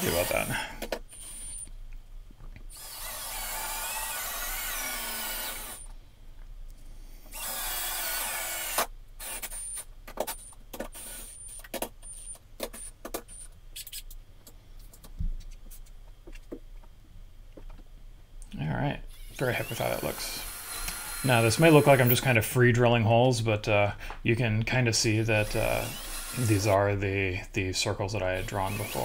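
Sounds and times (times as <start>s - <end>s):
cordless drill boring wood: 0.0s - 0.6s, 1.2s - 1.7s, 2.7s - 5.9s, 7.3s - 9.8s, 11.0s - 12.3s, 19.1s - 22.2s, 25.4s - 26.8s, 28.4s - 29.0s.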